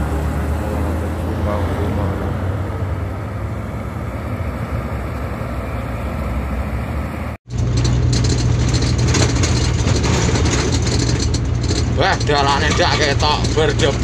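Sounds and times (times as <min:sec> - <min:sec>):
road and wind hiss: 0:00.0 - 0:07.4
truck diesel engine droning: 0:00.0 - 0:14.0.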